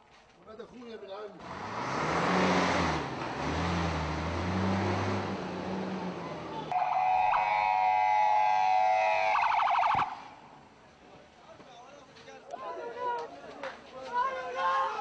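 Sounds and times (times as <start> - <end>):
road noise: 0.0 - 12.4
vehicle engine running: 1.4 - 6.7
ambulance siren wailing: 6.4 - 10.4.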